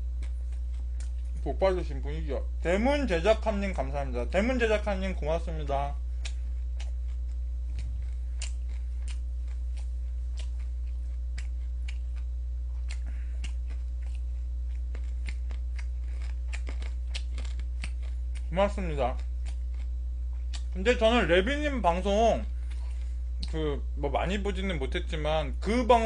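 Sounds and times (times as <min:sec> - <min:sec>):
person chewing food: 0:00.0 - 0:01.5, 0:06.2 - 0:21.2, 0:22.4 - 0:23.6
low electrical hum: 0:00.0 - 0:26.0.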